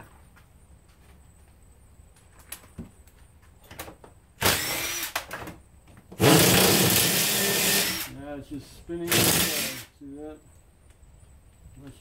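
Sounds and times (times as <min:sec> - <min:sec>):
cordless power drill running: 0:04.4 - 0:05.2, 0:06.2 - 0:08.1, 0:09.1 - 0:09.9.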